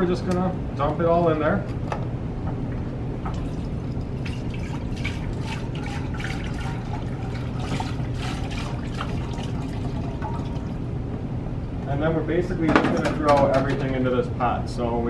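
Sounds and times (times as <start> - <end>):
broth pouring into a pot: 3.3 - 10.9.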